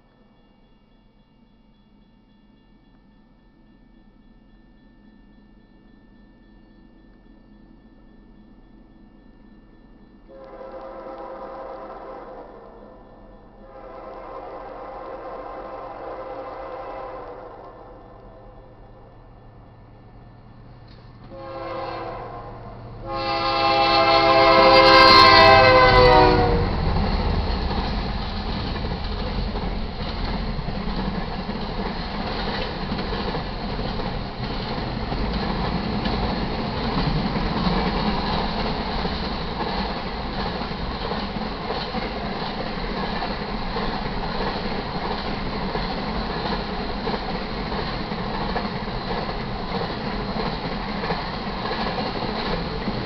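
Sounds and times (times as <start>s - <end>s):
rolling and clatter of train cars: 0.0s - 53.0s
heavy rumble of locomotives: 6.6s - 53.0s
locomotive horn blasts: 10.3s - 13.0s, 13.6s - 17.8s, 21.3s - 26.8s.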